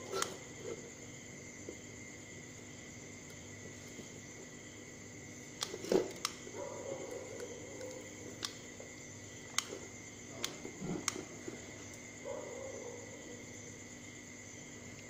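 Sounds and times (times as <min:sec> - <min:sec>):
sharp clicks: 0:07.8 - 0:08.7.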